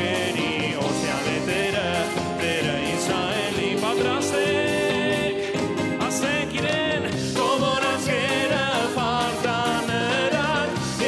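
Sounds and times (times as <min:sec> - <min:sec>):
acoustic guitar: 0:00.0 - 0:11.0
band accompaniment: 0:00.0 - 0:11.0.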